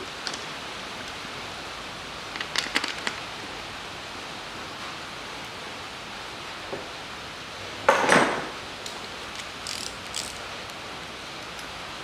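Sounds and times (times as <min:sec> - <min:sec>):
ratchet wrench clicks: 0:09.3 - 0:10.4.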